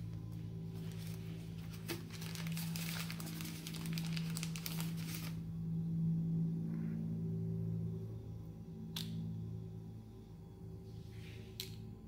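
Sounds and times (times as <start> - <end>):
steady low hum: 0.0 - 12.0
plastic bag crinkling: 0.8 - 5.4.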